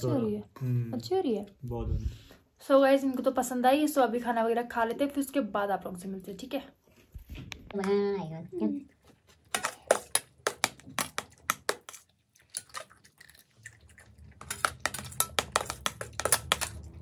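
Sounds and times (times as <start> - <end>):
metal spoon scraping a plate: 14.4 - 16.9.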